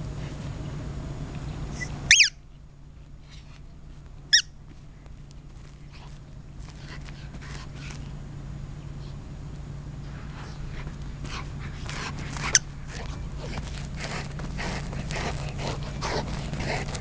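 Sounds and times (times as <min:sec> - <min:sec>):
rubber toy squeak: 0:01.8 - 0:02.4
dog panting and snuffling: 0:03.2 - 0:04.0, 0:04.7 - 0:08.2, 0:10.0 - 0:17.0.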